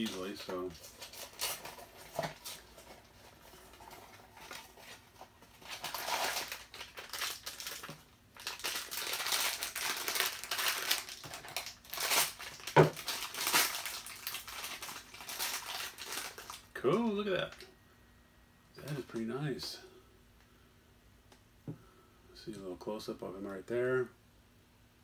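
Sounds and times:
cardboard packaging rustling: 0.0s - 16.8s.

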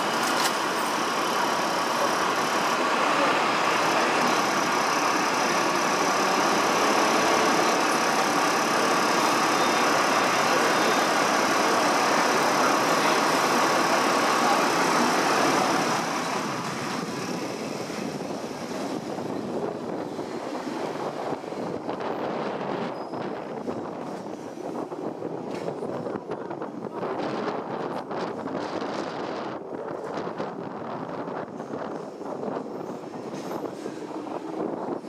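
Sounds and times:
vehicle engine running close by: 0.0s - 18.6s
city traffic noise: 0.0s - 35.0s.

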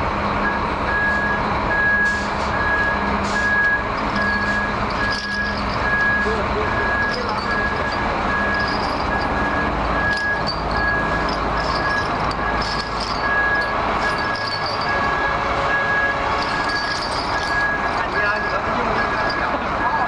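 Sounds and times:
heavy machine engine running: 0.0s - 20.0s
steel chain clinking: 3.4s - 15.4s, 16.0s - 20.0s.

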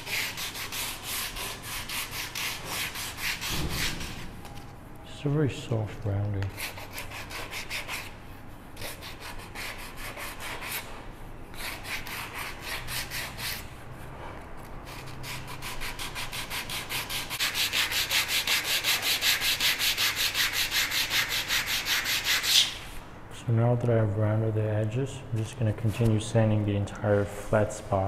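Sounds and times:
sandpaper rubbing on wood: 0.0s - 4.2s, 6.5s - 8.1s, 14.8s - 22.8s.

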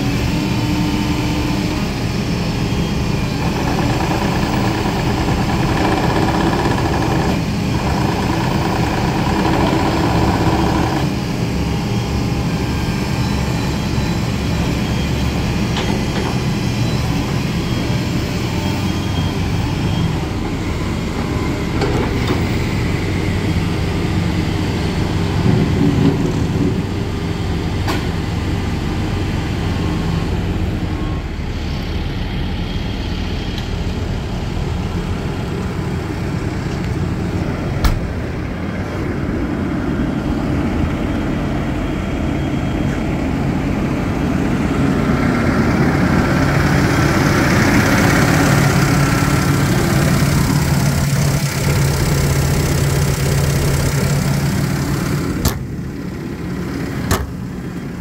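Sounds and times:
diesel engine idling: 26.4s - 58.0s.

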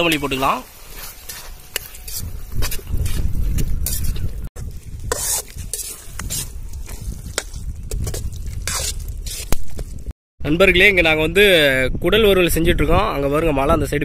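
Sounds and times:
food sizzling: 0.0s - 3.2s, 3.8s - 10.1s
metal ladle scraping a pan: 0.0s - 3.2s, 3.8s - 9.6s.

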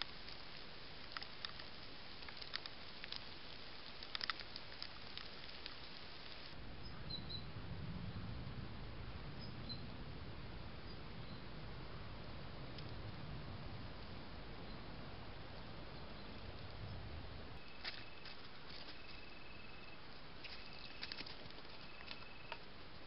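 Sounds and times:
faint clicks and crackles: 0.0s - 6.6s, 12.6s - 13.2s, 17.6s - 23.0s
steady hiss: 0.0s - 7.0s
low rumble: 6.6s - 18.2s
faint high chirps: 6.8s - 7.5s, 17.6s - 22.6s.

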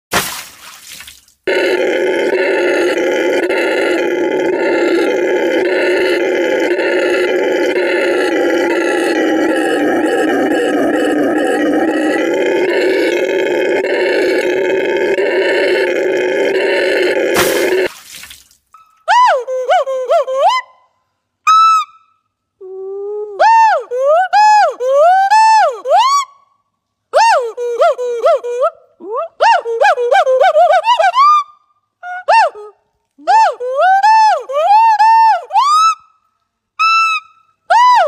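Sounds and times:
howler monkey roaring: 1.5s - 17.9s.

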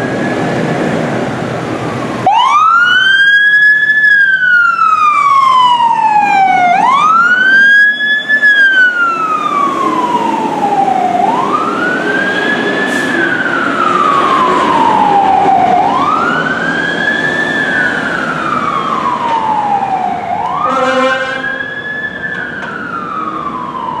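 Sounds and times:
fire truck siren wailing: 0.0s - 24.0s
short horn blast: 20.7s - 21.5s.

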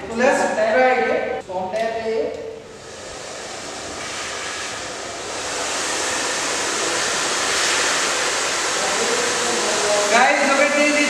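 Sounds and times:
hair dryer blowing air: 2.7s - 11.0s.

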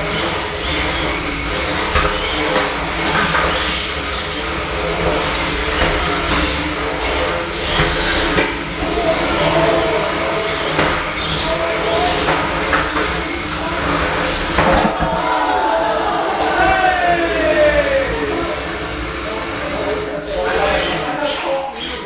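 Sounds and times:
robot drive motors whirring: 0.0s - 14.7s
noisy background: 0.0s - 22.0s.

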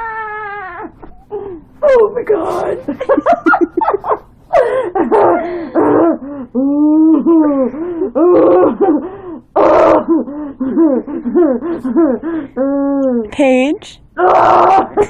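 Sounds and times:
girl moaning and hooting: 4.6s - 13.4s, 14.2s - 15.0s.

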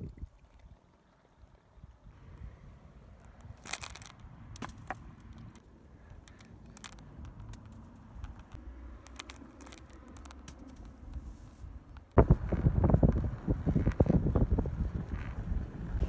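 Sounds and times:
wind rumble on microphone: 0.0s - 0.8s, 6.4s - 16.0s
small clicks and crackles: 3.2s - 14.3s.

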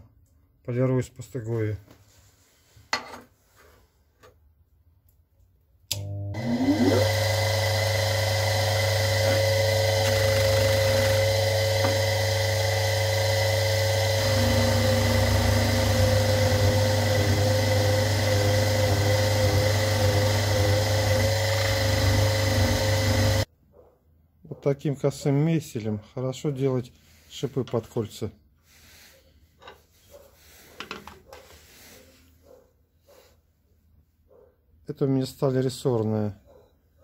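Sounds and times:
electric motor whine: 6.0s - 23.5s
blade pressed on polishing wheel: 6.4s - 23.5s.

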